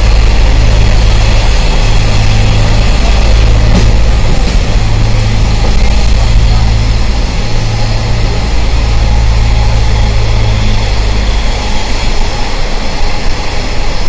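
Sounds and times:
background rush: 0:00.0 - 0:14.0
locomotive engine running: 0:00.0 - 0:14.0.

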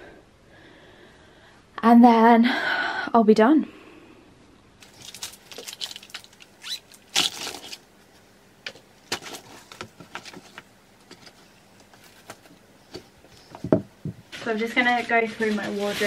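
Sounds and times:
plastic pouches rustling: 0:04.8 - 0:07.9, 0:08.7 - 0:13.5
notebook knocking in ottoman: 0:13.5 - 0:14.3.

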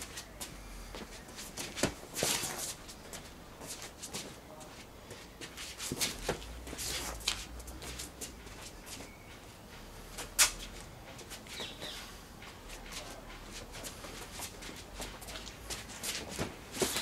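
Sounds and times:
footsteps scuffing on stone: 0:00.0 - 0:17.0.

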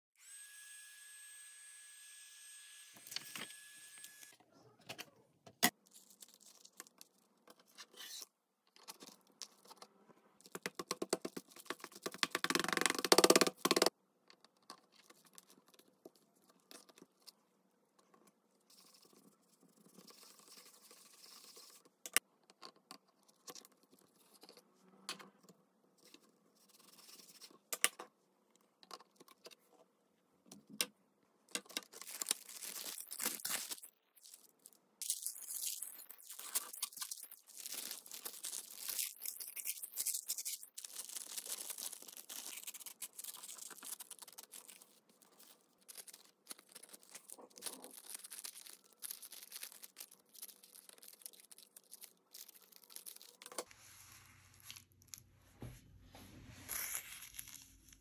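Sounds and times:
scratchy rubbing and tearing paper: 0:35.2 - 0:54.9, 0:56.6 - 0:58.0.

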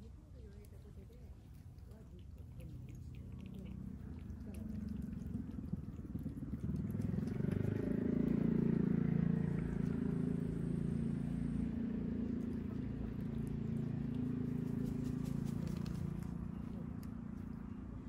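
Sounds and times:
passing vehicle engine: 0:02.4 - 0:18.0.

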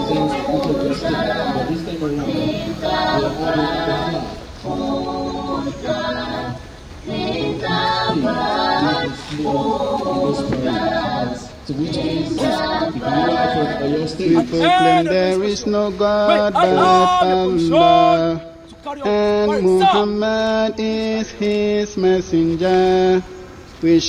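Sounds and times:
crowd chanting in unison: 0:00.0 - 0:23.2.

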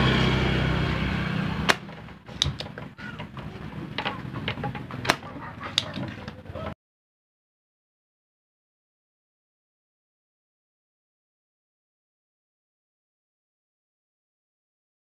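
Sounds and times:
loud steady buzzing hum: 0:00.0 - 0:02.5.

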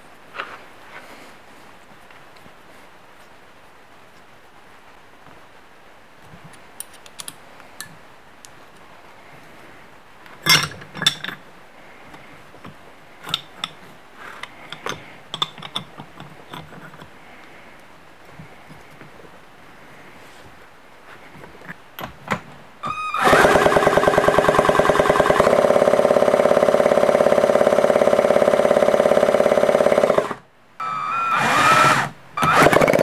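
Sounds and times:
metal tools clinking on metal: 0:10.4 - 0:11.4.

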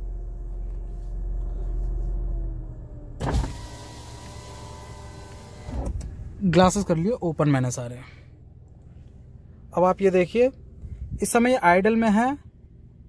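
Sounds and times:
car engine idling: 0:00.0 - 0:13.0
outside air noise: 0:00.0 - 0:13.0
electric window motor whining: 0:00.2 - 0:06.4.

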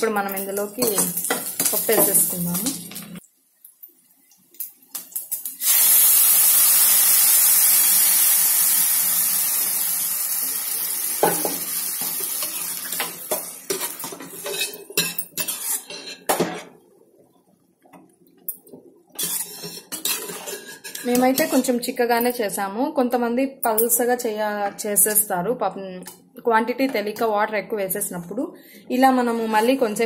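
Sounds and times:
dal sizzling in hot oil: 0:00.0 - 0:03.2, 0:03.8 - 0:16.3, 0:19.1 - 0:21.7
metal ladle scraping pot: 0:13.7 - 0:16.3, 0:19.2 - 0:21.8.

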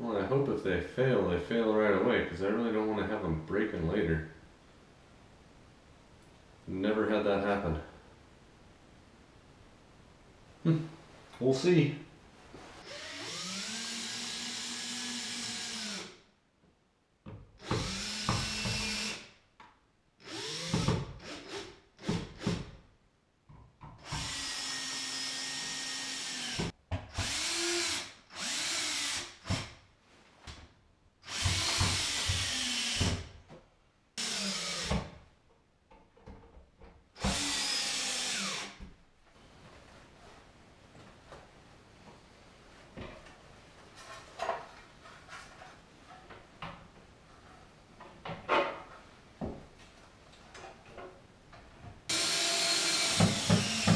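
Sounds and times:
cordless drill driving screws: 0:12.8 - 0:16.2, 0:17.6 - 0:19.3, 0:20.2 - 0:22.7, 0:24.0 - 0:29.7, 0:31.2 - 0:33.2, 0:34.2 - 0:35.0, 0:37.2 - 0:38.8, 0:52.1 - 0:53.9.

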